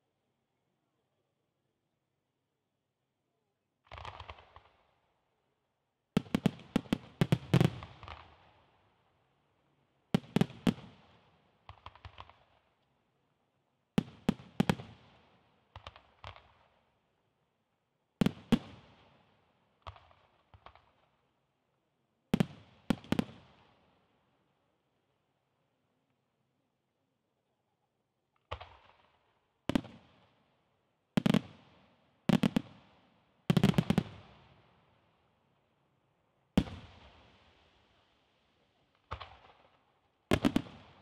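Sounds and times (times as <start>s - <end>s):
fireworks bursting with sharp bangs: 3.9s - 4.8s, 6.2s - 8.5s, 10.2s - 12.6s, 14.0s - 16.7s, 18.2s - 19.1s, 22.4s - 23.7s, 28.4s - 30.4s, 31.2s - 34.7s, 36.6s - 38.0s, 38.9s - 41.0s.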